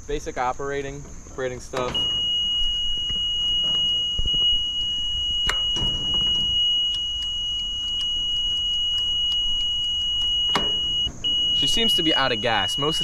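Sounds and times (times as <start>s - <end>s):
high-pitched warning buzzer: 2.0s - 13.0s.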